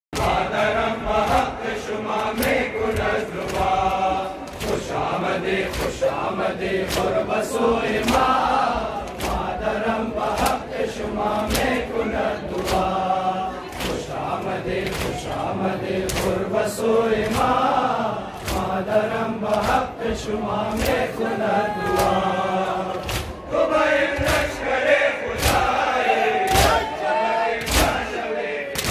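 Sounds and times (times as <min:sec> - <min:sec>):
hands slapping chests: 0:00.2 - 0:07.3, 0:07.9 - 0:09.6, 0:10.2 - 0:10.7, 0:11.3 - 0:13.0, 0:13.6 - 0:16.5, 0:17.2 - 0:17.7, 0:18.4 - 0:20.0, 0:20.7 - 0:21.2, 0:21.8 - 0:22.3, 0:22.9 - 0:23.4, 0:24.2 - 0:24.6, 0:25.3 - 0:25.8, 0:26.4 - 0:26.9, 0:27.6 - 0:28.1
men chanting a lament: 0:00.2 - 0:28.9.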